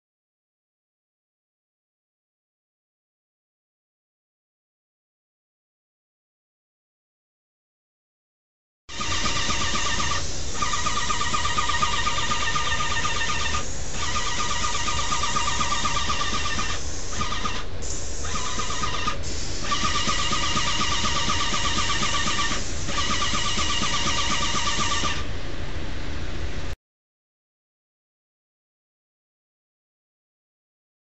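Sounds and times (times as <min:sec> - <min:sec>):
spray hiss: 0:08.9 - 0:25.2
spray equipment motor whine: 0:08.9 - 0:25.3.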